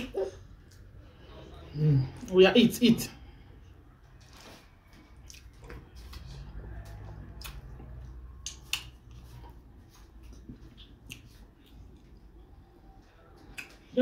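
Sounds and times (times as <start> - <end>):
chewing: 5.0 - 12.4.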